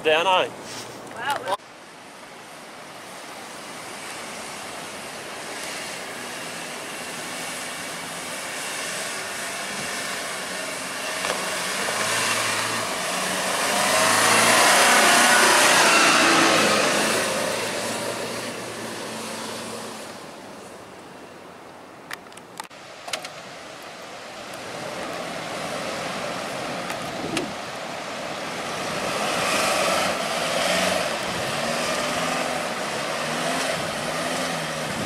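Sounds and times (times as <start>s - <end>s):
vehicle engine working hard: 2.6s - 20.9s, 24.6s - 35.0s
tyres spinning flinging sand: 3.5s - 20.0s.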